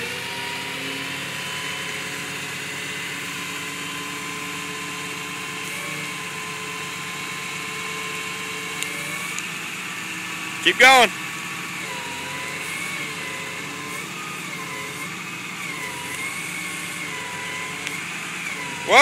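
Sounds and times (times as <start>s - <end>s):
hydraulic pump whine: 0.0s - 19.0s
tow truck engine humming: 0.0s - 19.0s.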